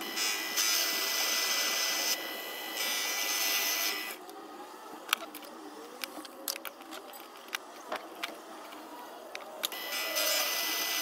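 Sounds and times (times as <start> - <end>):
lathe cutting hiss: 0.0 - 4.2
thin motor whine: 0.0 - 11.0.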